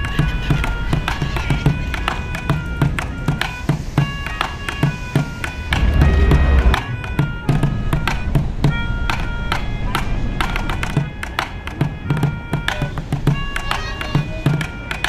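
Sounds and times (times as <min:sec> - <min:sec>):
low pulse: 0:05.2 - 0:10.9
plucked string notes: 0:05.2 - 0:11.0
brief low rumble: 0:05.6 - 0:07.7.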